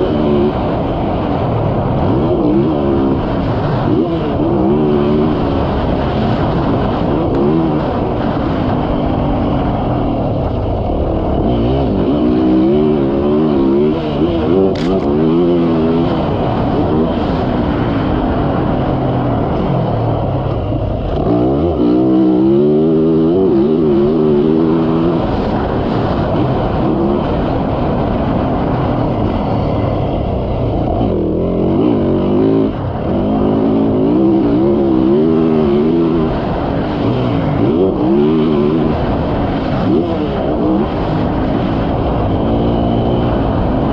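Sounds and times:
motorcycle engine revving: 0:00.0 - 0:43.9
sharp click: 0:14.7 - 0:15.1.

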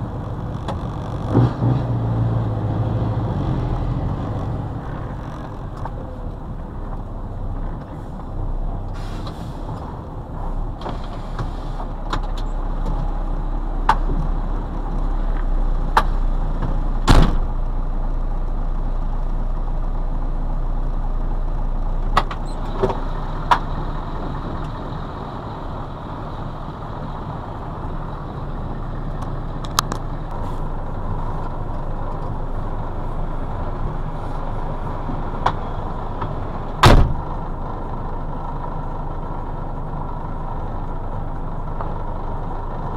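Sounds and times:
truck engine idling: 0:00.0 - 0:01.4, 0:02.0 - 0:42.9
knocks and clunks in cab: 0:36.8 - 0:37.3.

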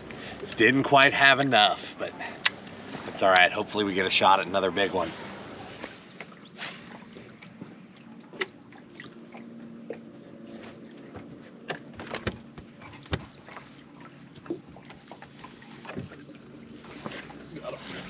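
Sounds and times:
trolling motor humming: 0:00.0 - 0:18.0
clicks and knocks on boat: 0:05.8 - 0:17.4.

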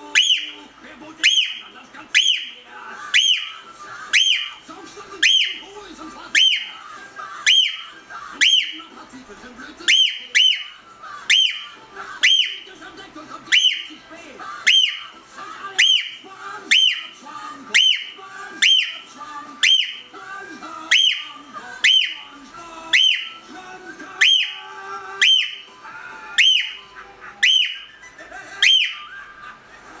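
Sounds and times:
cockatiel shrill whistled call: 0:00.1 - 0:00.6, 0:01.2 - 0:01.6, 0:02.2 - 0:02.6, 0:03.2 - 0:03.6, 0:04.2 - 0:04.6, 0:05.2 - 0:05.6, 0:06.4 - 0:06.8, 0:07.5 - 0:08.8, 0:11.3 - 0:12.6, 0:13.5 - 0:13.9, 0:14.7 - 0:15.1, 0:19.6 - 0:20.1, 0:24.2 - 0:24.6, 0:25.2 - 0:25.7, 0:26.4 - 0:26.8, 0:27.4 - 0:28.0, 0:28.6 - 0:29.1.

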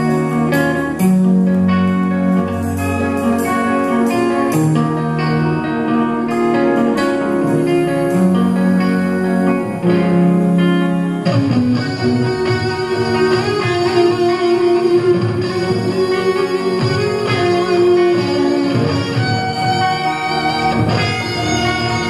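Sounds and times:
rock band playing: 0:00.0 - 0:22.0.

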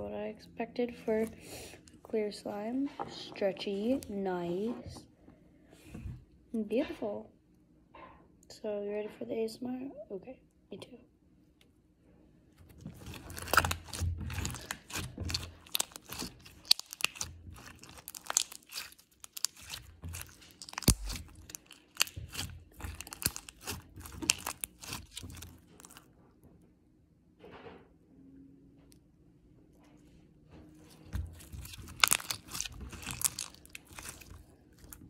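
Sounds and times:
slime squished by hand: 0:12.7 - 0:26.0, 0:30.9 - 0:35.0.

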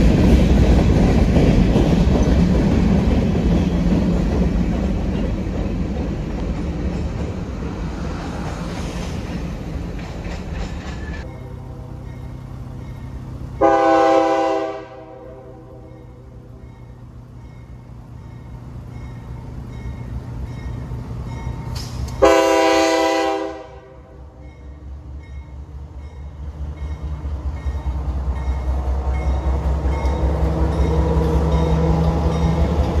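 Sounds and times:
locomotive diesel engine rumbling: 0:00.0 - 0:33.0
crossing bell dinging: 0:11.2 - 0:22.8, 0:24.0 - 0:33.0
locomotive air horn blast: 0:13.6 - 0:16.1, 0:22.2 - 0:24.4.

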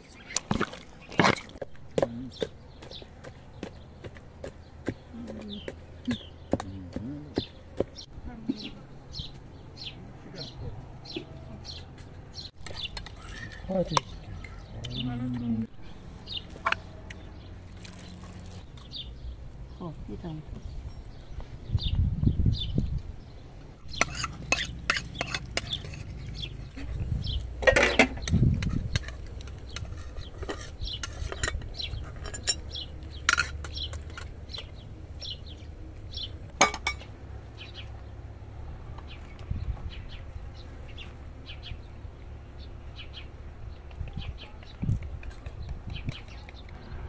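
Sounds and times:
birds chirping: 0:00.0 - 0:47.0.

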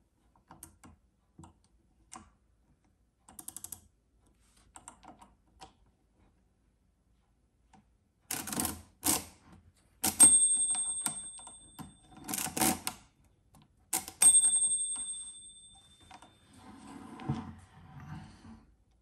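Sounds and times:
ringing bell tone: 0:10.2 - 0:12.3, 0:14.2 - 0:16.8.

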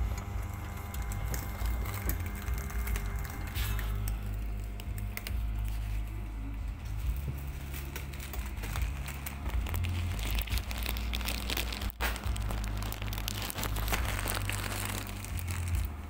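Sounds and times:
plastic packaging crinkling: 0:00.0 - 0:16.0.

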